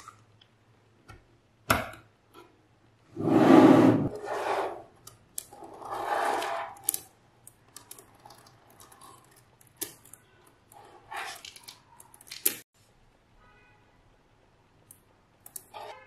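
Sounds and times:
magnetic balls sliding on table: 0:03.2 - 0:04.9, 0:05.6 - 0:06.8.

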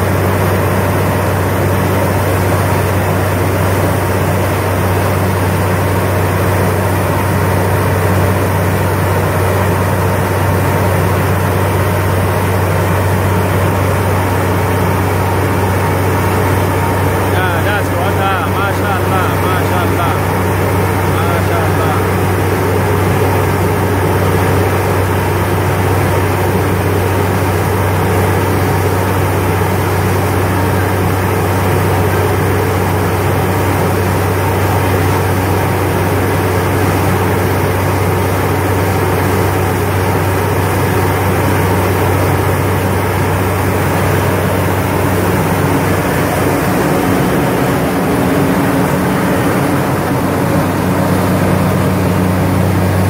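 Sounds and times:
heavy engine drone: 0:00.0 - 0:53.0
rushing noise: 0:44.4 - 0:53.0.

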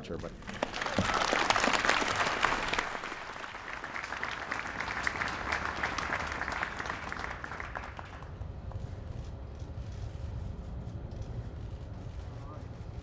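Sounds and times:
audience applauding: 0:00.4 - 0:08.4.

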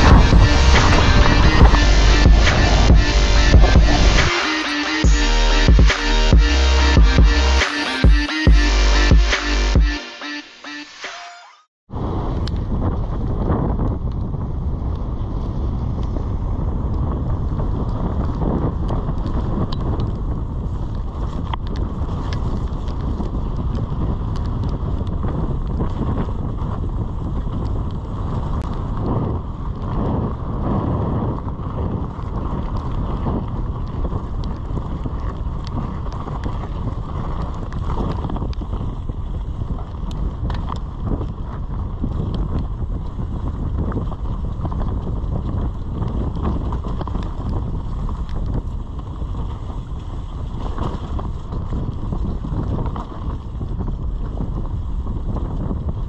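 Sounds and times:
bike tyre noise on dirt: 0:00.0 - 0:04.5, 0:11.9 - 0:56.0
wind on microphone: 0:00.0 - 0:08.6, 0:11.9 - 0:56.0
bike clicks and rattles: 0:16.9 - 0:56.0.

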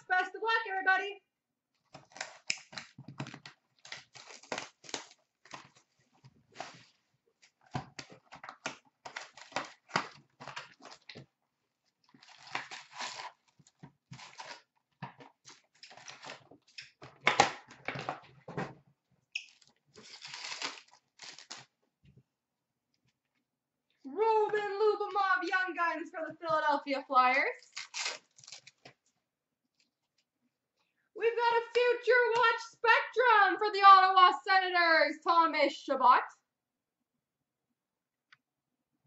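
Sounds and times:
card packs crinkling and tearing: 0:01.8 - 0:06.0, 0:07.5 - 0:11.3, 0:12.1 - 0:17.6, 0:19.5 - 0:21.8, 0:27.6 - 0:29.0.

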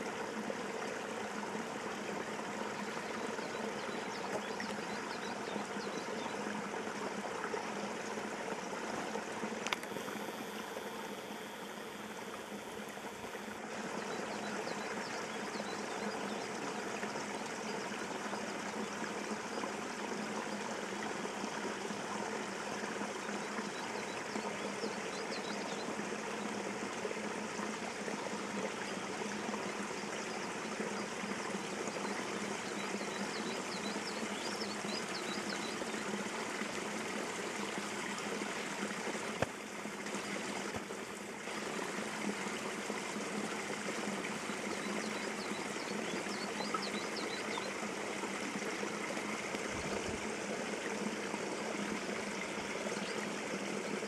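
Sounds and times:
water trickling and running: 0:00.0 - 0:54.0
click: 0:09.6 - 0:09.9.

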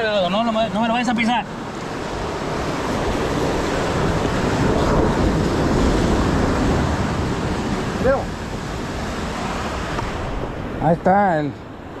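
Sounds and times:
wind on microphone: 0:01.5 - 0:10.8
waves washing against rocks: 0:01.6 - 0:10.5.

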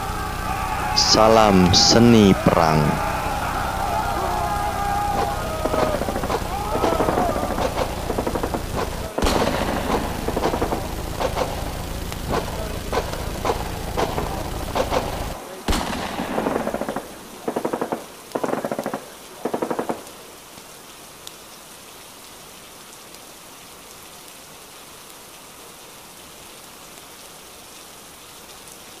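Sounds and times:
low rumble: 0:00.0 - 0:17.2
steady hiss: 0:00.0 - 0:29.0
machine-gun bursts: 0:03.6 - 0:20.1
single gunshots: 0:05.0 - 0:20.0.

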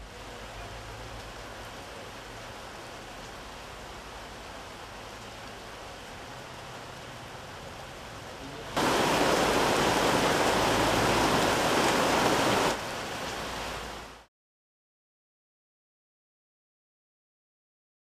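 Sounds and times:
faint steady hiss: 0:00.0 - 0:14.3
heavy rain pouring: 0:00.0 - 0:14.3.

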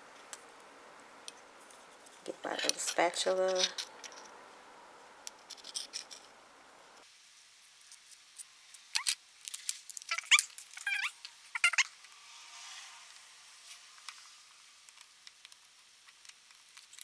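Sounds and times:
short rising squeaks: 0:10.1 - 0:13.2.

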